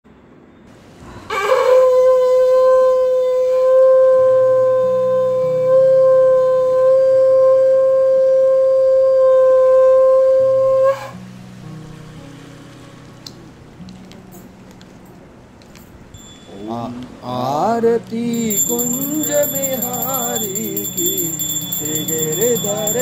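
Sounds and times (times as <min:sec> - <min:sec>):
conch shell blown: 0:01.3 - 0:11.2
soft low instrumental music: 0:09.3 - 0:23.0.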